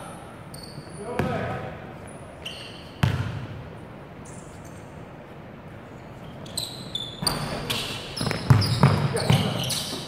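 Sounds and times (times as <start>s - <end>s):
low hall ambience: 0.0s - 10.0s
sneakers squeaking on court: 0.5s - 3.6s, 4.2s - 5.1s, 6.0s - 10.0s
basketball striking rim: 3.0s - 3.5s.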